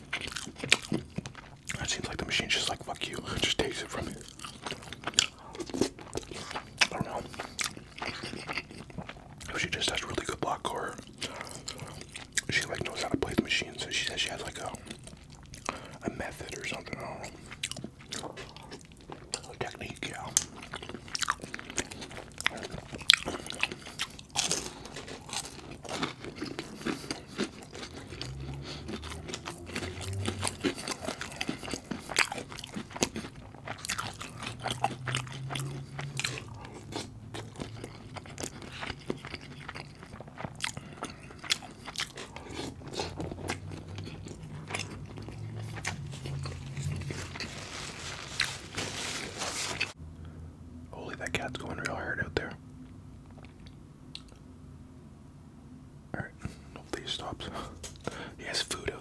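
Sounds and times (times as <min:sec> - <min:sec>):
person chewing crunchy food: 0:00.0 - 0:50.0.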